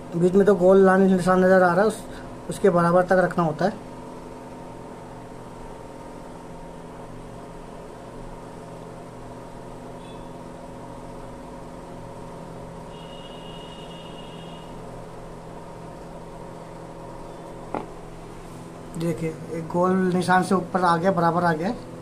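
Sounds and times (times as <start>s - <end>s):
machine humming: 0.0s - 22.0s
faint high-pitched tone: 12.9s - 14.7s.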